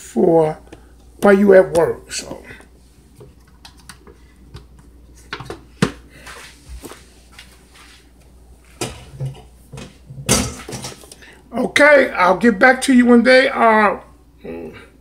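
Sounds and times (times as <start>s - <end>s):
low steady hum: 0.0s - 15.0s
kitchen knocks and clinks: 8.8s - 11.1s.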